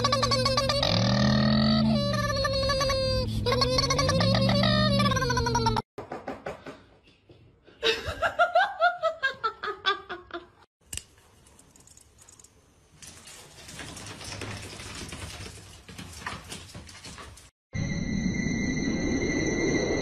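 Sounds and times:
person laughing: 7.8 - 10.6.

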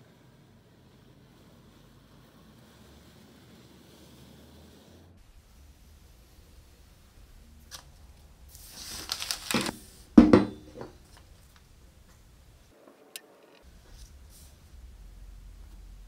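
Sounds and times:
paper rustling: 7.6 - 10.1
pick-axe head clunking on table: 10.2 - 10.9.

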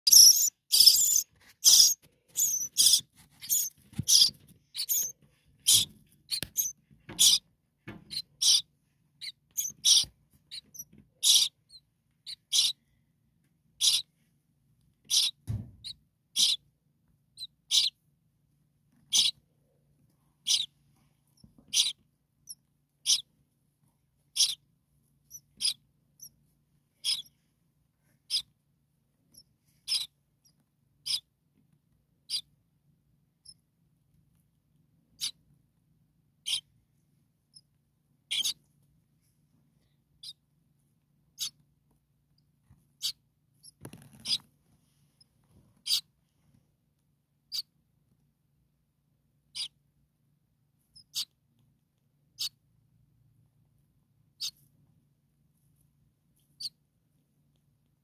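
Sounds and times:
nestlings peeping: 0.0 - 13.0, 13.7 - 14.1, 14.9 - 16.7, 17.3 - 18.0, 19.0 - 23.4, 24.3 - 27.5, 28.2 - 28.5, 29.3 - 31.3, 32.3 - 32.5, 35.2 - 35.4, 36.4 - 36.7, 38.3 - 38.6, 40.2 - 40.4, 41.3 - 41.6, 43.0 - 44.5, 45.8 - 46.1, 47.5 - 47.7, 49.5 - 49.8, 50.9 - 51.4, 52.3 - 52.6, 54.4 - 54.6, 56.4 - 56.8.

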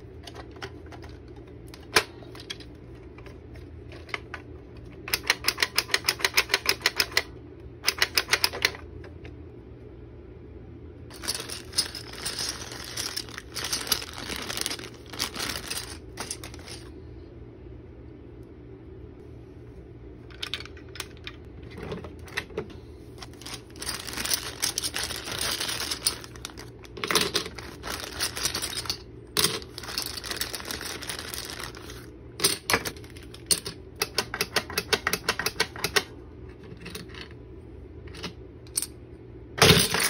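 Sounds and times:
plastic bag crinkling: 11.1 - 16.9, 23.2 - 32.1
plastic toy pieces clattering: 11.1 - 16.9, 23.2 - 34.3, 39.6 - 40.0.

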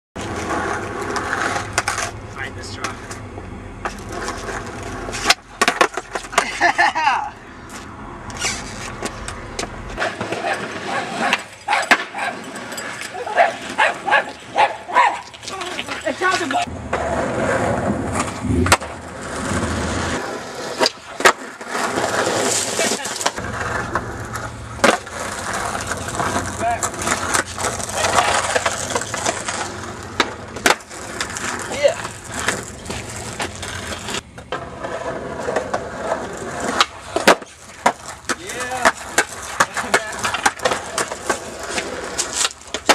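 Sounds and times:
skateboard clacks on concrete: 0.2 - 2.2, 2.8 - 6.9, 7.7 - 42.9.

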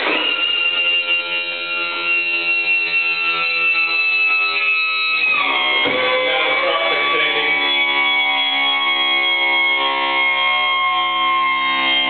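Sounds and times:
hydraulic pump whining: 0.0 - 12.0.

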